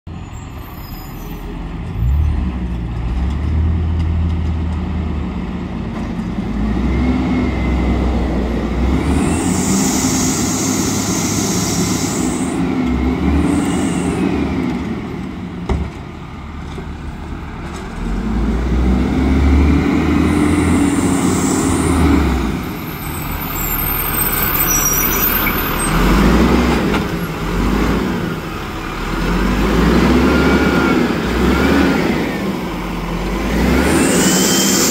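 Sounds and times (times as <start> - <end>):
garbage truck diesel engine: 0.1 - 34.9
air brakes hissing: 9.0 - 12.7, 13.3 - 14.5, 20.3 - 26.0, 33.8 - 34.9.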